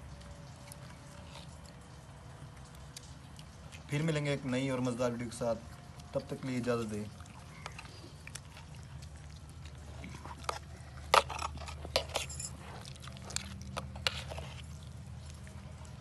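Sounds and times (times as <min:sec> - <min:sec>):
spoons clinking on metal platter: 0:11.1 - 0:12.6.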